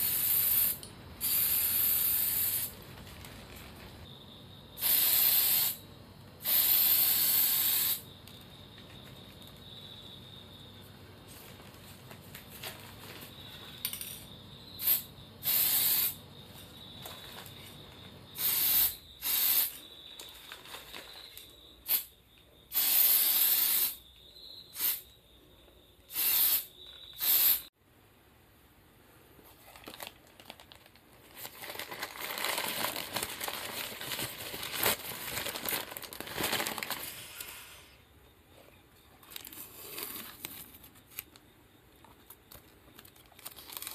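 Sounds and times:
aerosol spray can hissing: 0.0 - 2.7, 4.8 - 5.8, 6.4 - 8.0, 14.8 - 16.2, 18.4 - 19.8, 22.7 - 24.0, 24.8 - 25.0, 26.1 - 27.7
newspaper crinkling: 20.2 - 21.4, 29.5 - 37.5, 39.2 - 41.4, 42.3 - 43.9.

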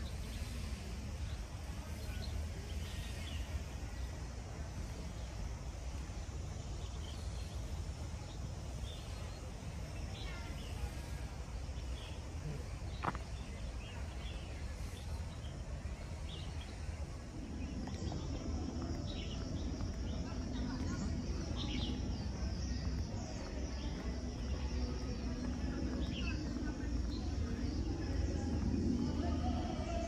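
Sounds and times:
faint voices: 0.0 - 30.0
low rumble: 12.3 - 30.0.

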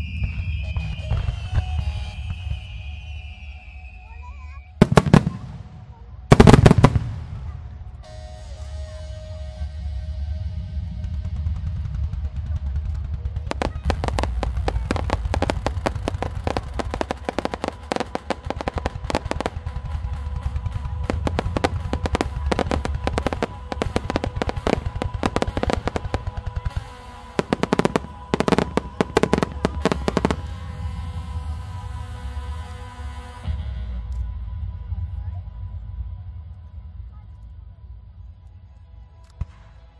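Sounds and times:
fireworks bursting: 0.0 - 4.0, 4.8 - 8.6, 11.3 - 33.6
background music: 0.0 - 39.9.

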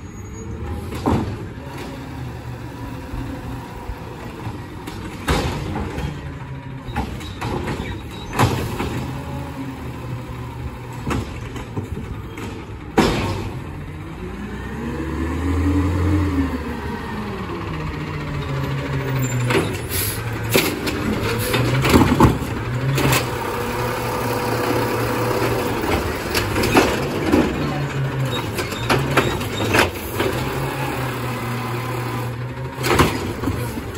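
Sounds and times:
truck engine revving: 0.5 - 33.9
diesel truck engine idling: 9.0 - 33.9.

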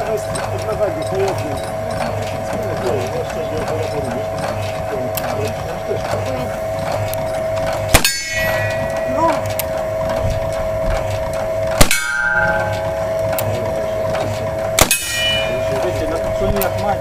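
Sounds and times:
steady high hum: 0.0 - 17.0
steel target ringing: 7.3 - 16.5.

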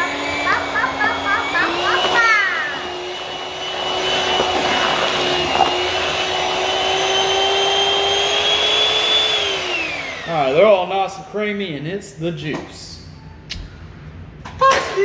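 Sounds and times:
electric hand mixer whine: 0.0 - 10.5.

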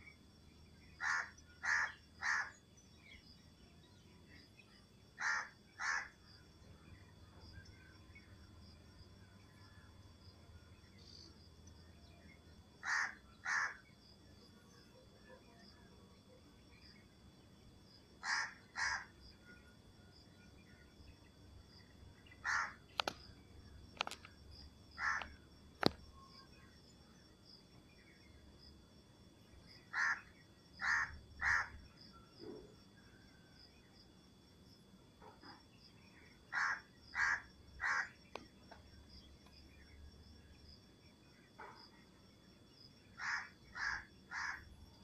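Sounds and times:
insects high tone: 0.0 - 45.0
crows cawing: 1.0 - 2.5, 5.2 - 6.2, 12.8 - 13.8, 18.2 - 19.1, 22.4 - 22.8, 25.0 - 25.4, 29.9 - 31.8, 36.5 - 38.2, 43.2 - 44.7
sharp clicks: 22.9 - 23.2, 23.9 - 24.4.

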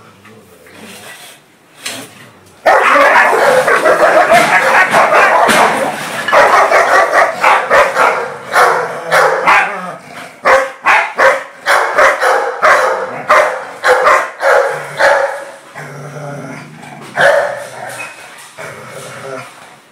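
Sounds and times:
dogs barking: 2.6 - 15.7, 17.1 - 18.4.

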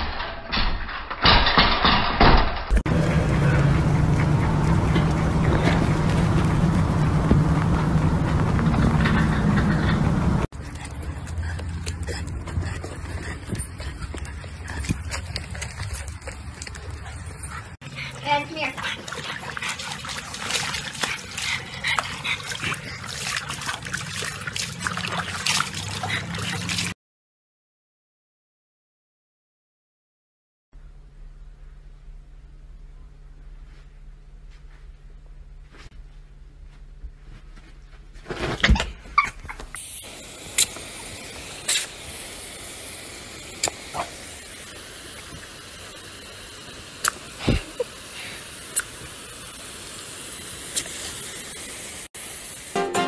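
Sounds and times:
water splashing in tub: 18.1 - 26.9
water spilling onto concrete: 18.1 - 27.0
hose nozzle spraying water: 39.7 - 53.0.

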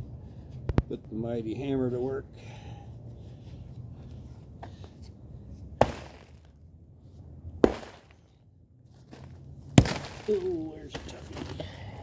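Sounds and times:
sledgehammer hitting concrete blocks: 5.8 - 6.5, 7.6 - 8.3, 9.8 - 11.2.

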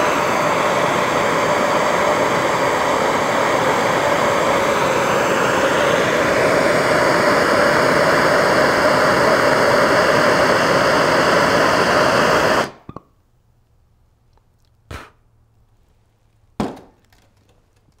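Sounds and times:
propane torch hissing: 0.0 - 12.9.

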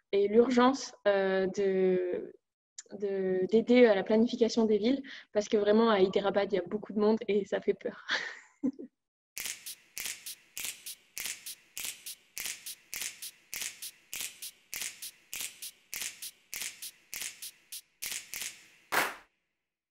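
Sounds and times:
high percussion music: 9.4 - 19.2.

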